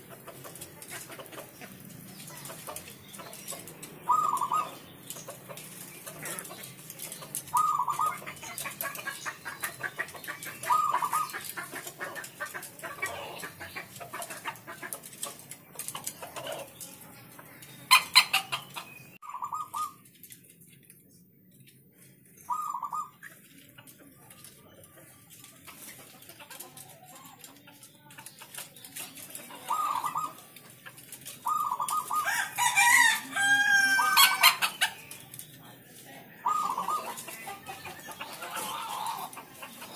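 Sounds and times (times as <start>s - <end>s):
doves cooing: 0.0s - 20.1s, 22.3s - 35.6s, 36.2s - 39.9s.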